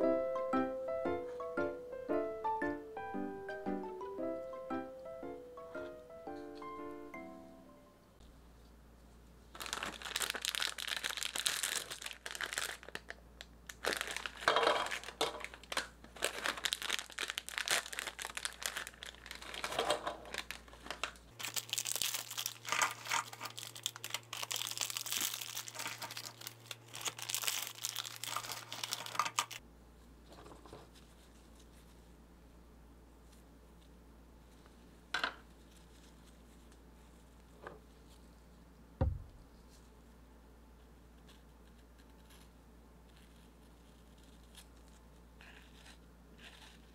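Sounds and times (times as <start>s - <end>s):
foil packets crinkling: 9.5s - 29.6s.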